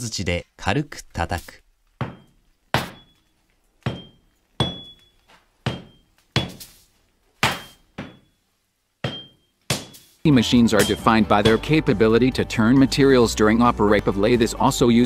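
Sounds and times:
hammer striking steel on anvil: 2.0s - 3.2s, 3.8s - 6.7s, 7.4s - 8.4s, 9.0s - 11.9s.

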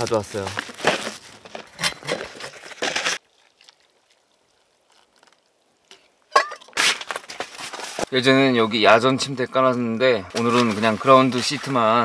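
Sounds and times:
nylon sack rustling: 0.0s - 3.6s.

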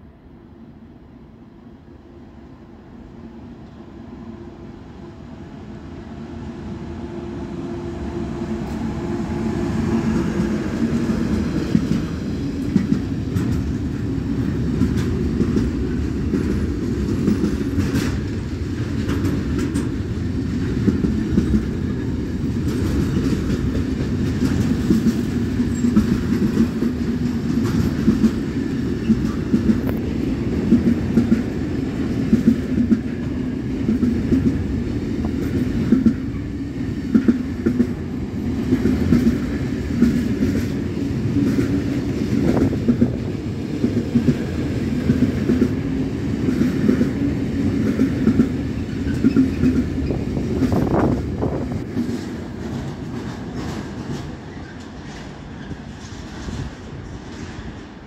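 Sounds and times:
freight train rumble: 0.0s - 58.0s
wheels clacking over rail joints: 10.1s - 58.0s.

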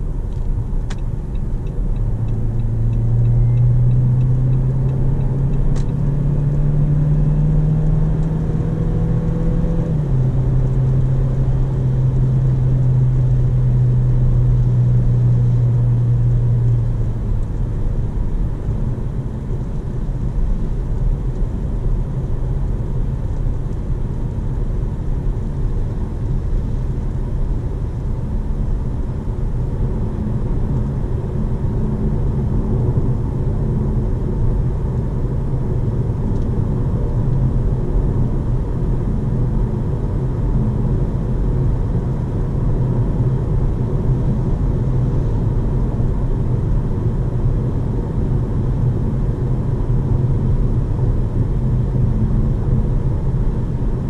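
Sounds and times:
car engine accelerating: 0.1s - 23.5s.

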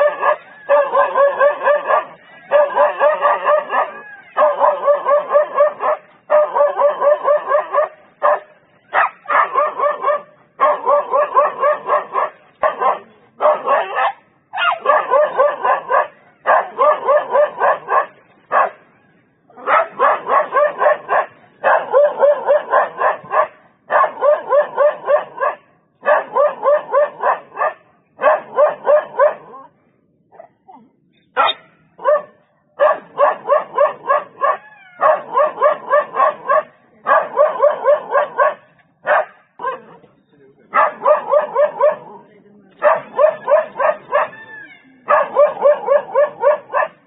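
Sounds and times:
dog barking fast: 0.0s - 18.8s, 19.6s - 29.5s, 31.4s - 39.9s, 40.7s - 42.1s, 42.8s - 44.4s, 45.1s - 47.0s.

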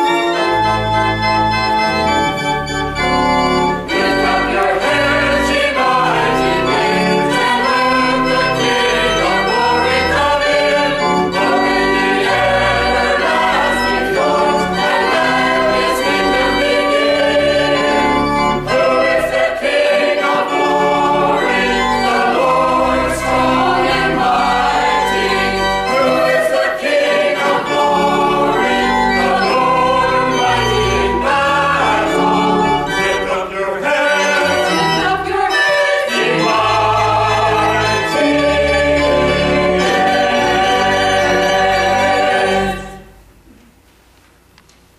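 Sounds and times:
choir singing: 0.0s - 43.2s.

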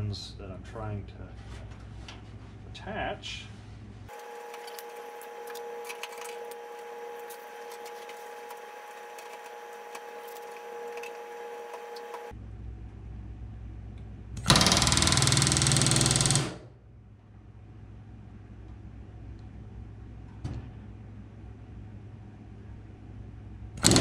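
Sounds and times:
steady hum: 0.0s - 24.0s
rivet gun hammering: 14.4s - 16.6s, 23.8s - 24.0s.

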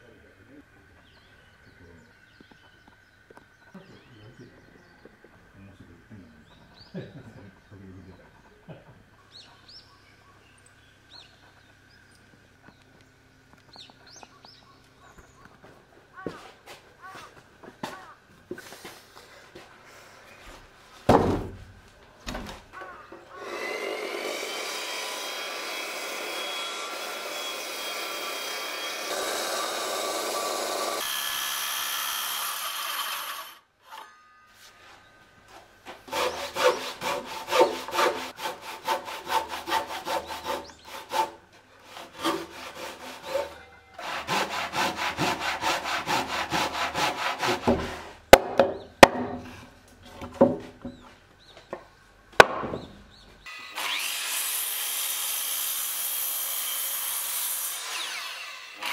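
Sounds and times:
knock on wooden beam: 21.1s - 21.6s, 52.4s - 53.0s
hand saw sawing wood: 23.3s - 34.1s, 36.0s - 48.2s, 53.7s - 58.9s
circular saw cutting wood: 23.3s - 34.2s, 36.1s - 48.2s, 53.5s - 58.9s.

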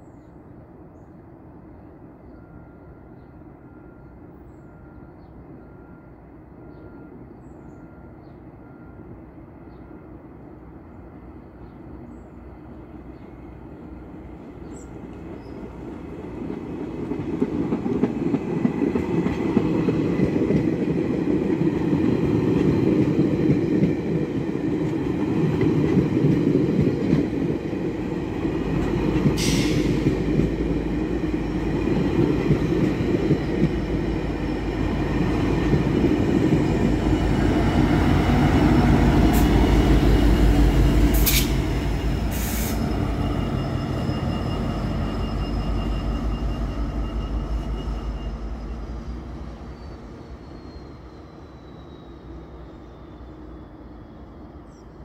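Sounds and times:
train rumbling past: 0.0s - 55.0s
brief hiss: 41.2s - 41.6s, 42.3s - 42.9s.

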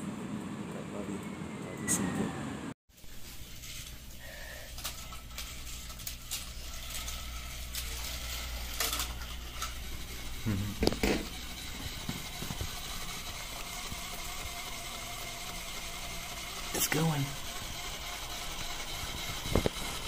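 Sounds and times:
steady low hum: 0.0s - 20.0s
plastic toys clicking and knocking: 4.7s - 10.2s, 10.8s - 20.0s.

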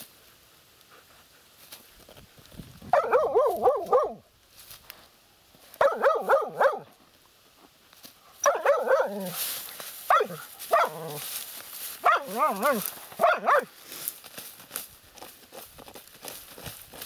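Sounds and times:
dog barking high-pitched: 2.9s - 4.2s, 5.8s - 6.9s, 8.4s - 9.4s, 10.1s - 11.2s, 12.0s - 13.7s.

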